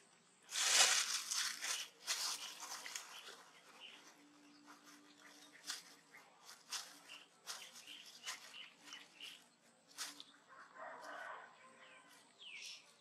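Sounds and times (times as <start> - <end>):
plastic bag rustling: 0.5 - 4.1.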